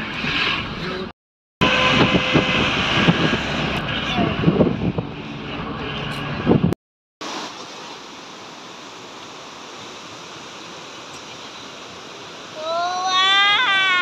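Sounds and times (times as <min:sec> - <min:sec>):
car road noise: 0:01.6 - 0:07.4
river rushing over rocks: 0:07.2 - 0:14.0.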